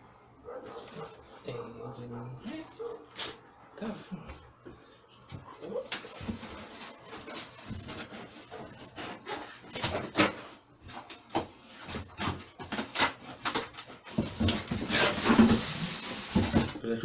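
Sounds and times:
packaging rustling and scraping: 0.5s - 1.5s, 5.5s - 16.8s.

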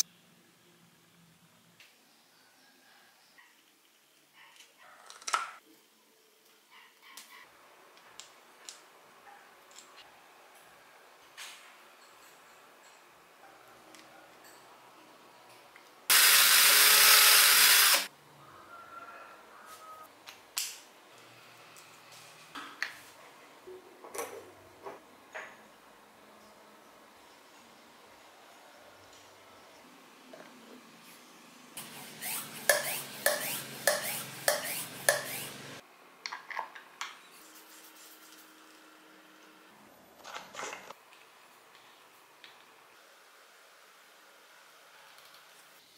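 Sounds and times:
electric power tool running: 16.1s - 18.1s.

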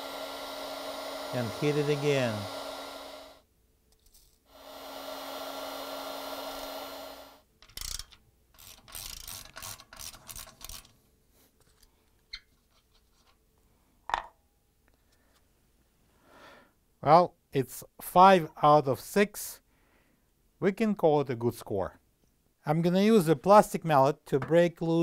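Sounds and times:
heat gun blowing: 0.0s - 3.5s, 4.5s - 8.0s.

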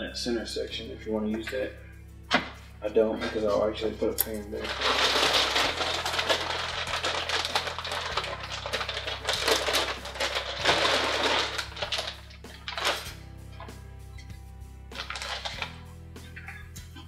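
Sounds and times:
quiet background music: 0.0s - 17.0s
small parts clattering: 4.2s - 13.1s.

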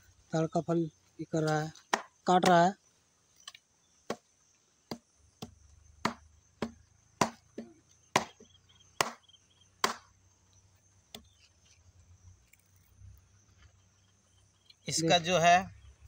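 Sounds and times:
blade chopping into fruit: 4.9s - 8.4s, 9.0s - 9.2s, 9.8s - 10.1s.

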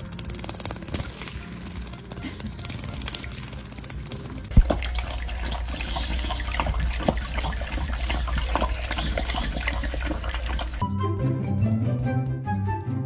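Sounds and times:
dog lapping from metal bowl: 4.5s - 10.8s.

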